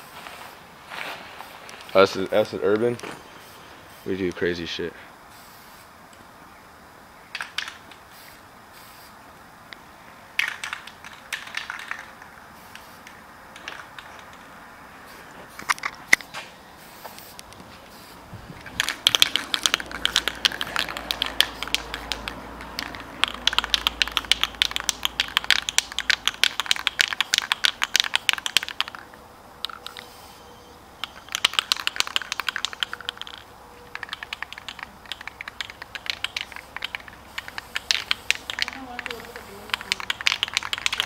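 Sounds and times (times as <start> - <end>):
spray paint can rattling: 7.3 - 9.1, 10.3 - 14.5, 16.9 - 30.2, 31.0 - 41.0.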